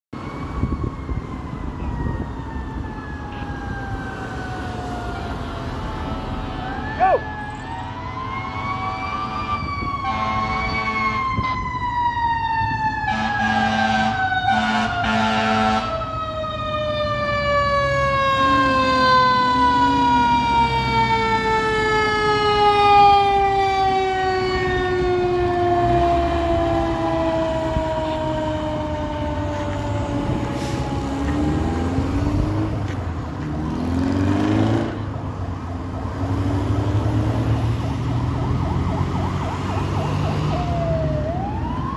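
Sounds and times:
fire engine siren wailing: 0.1s - 41.9s
truck engines and traffic: 0.1s - 41.9s
air horn blasts: 9.2s - 11.3s, 13.1s - 15.9s.

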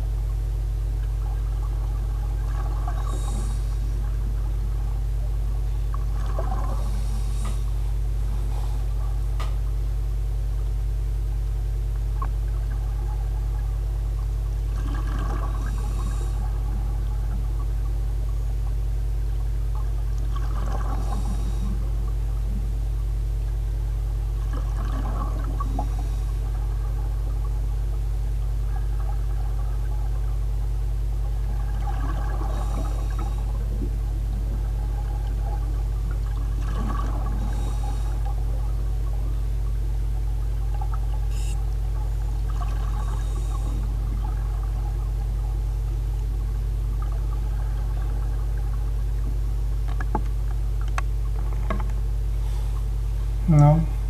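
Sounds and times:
exhaled bubbles gushing: 0.0s - 54.0s
steady low hum: 0.0s - 54.0s
diver breathing through regulator: 2.5s - 5.0s, 5.6s - 9.4s, 14.8s - 17.4s, 20.4s - 22.6s, 24.8s - 27.0s, 31.5s - 33.8s, 36.6s - 39.0s, 42.6s - 44.8s, 52.3s - 53.0s.

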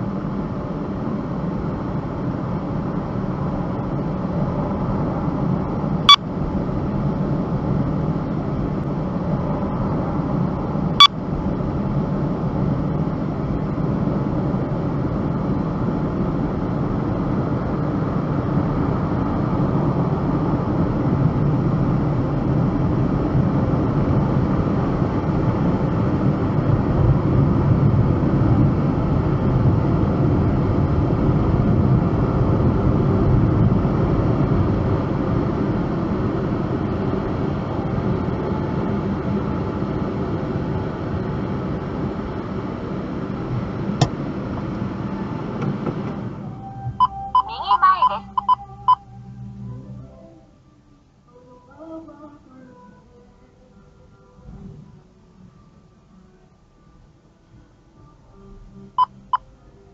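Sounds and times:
car rumble in motion: 0.0s - 52.7s.

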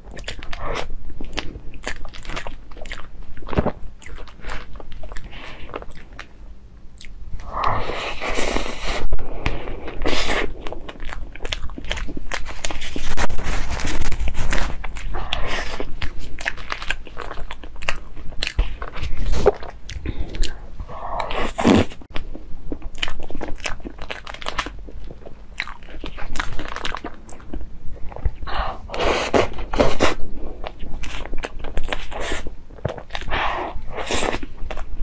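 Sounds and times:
close chewing and mouth sounds: 0.0s - 35.0s.

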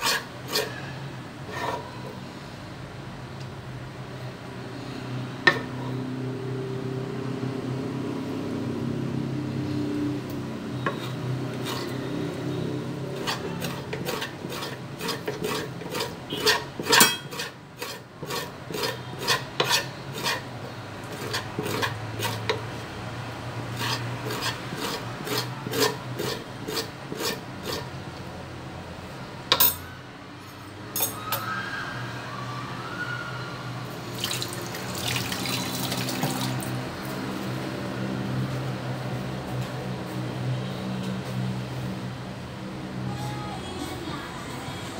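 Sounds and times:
blade scraping intestine on board: 0.0s - 0.9s, 10.8s - 12.1s, 13.1s - 22.7s, 23.7s - 27.9s.

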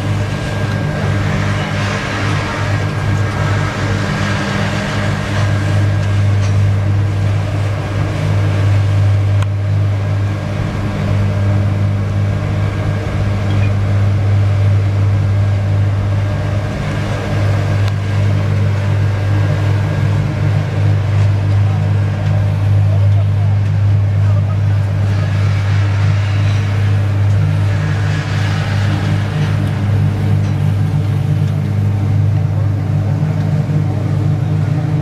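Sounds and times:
concrete paver droning: 0.0s - 35.0s.

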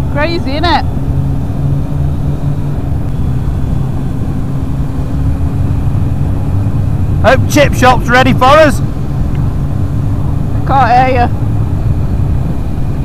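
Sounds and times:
motorcycle engine cruising: 0.0s - 13.0s
rushing wind: 0.0s - 13.0s.

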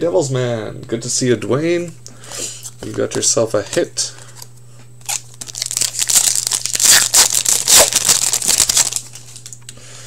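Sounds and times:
wrapper tearing and crinkling: 5.0s - 9.6s.

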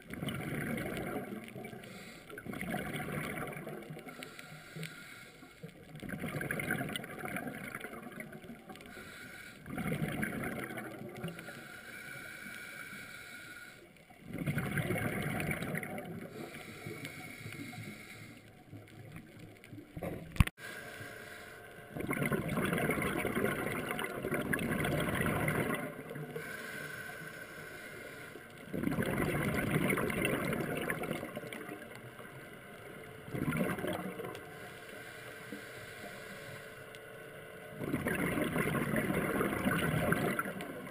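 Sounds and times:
bubbles gurgling: 0.0s - 4.2s, 5.8s - 8.7s, 9.6s - 11.4s, 14.2s - 16.5s, 21.9s - 26.4s, 28.7s - 31.9s, 33.2s - 34.4s, 37.8s - 40.9s
diver breathing through regulator: 1.6s - 5.8s, 8.7s - 9.9s, 11.2s - 14.0s, 16.2s - 18.6s, 20.6s - 21.8s, 26.1s - 28.7s, 34.4s - 37.0s.

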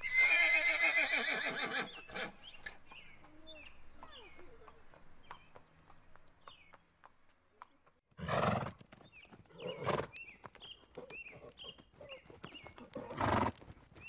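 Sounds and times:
horse whinnying: 0.0s - 2.3s
hooves clip-clopping on dry ground: 0.0s - 14.0s.

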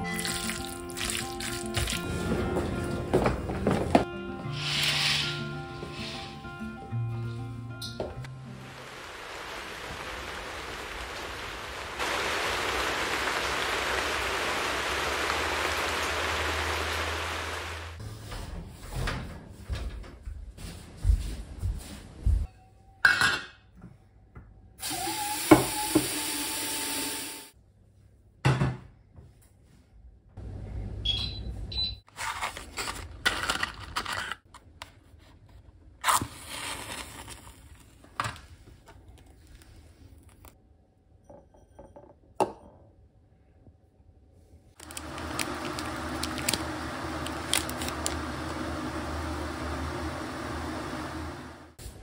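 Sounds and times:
steady rushing noise: 8.7s - 18.0s
mixer tap running: 44.8s - 51.7s.

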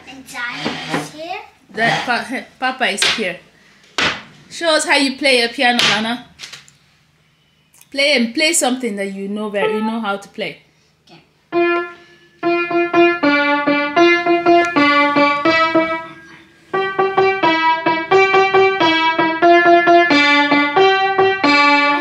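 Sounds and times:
child playing piano notes: 9.6s - 10.1s, 11.5s - 22.0s.

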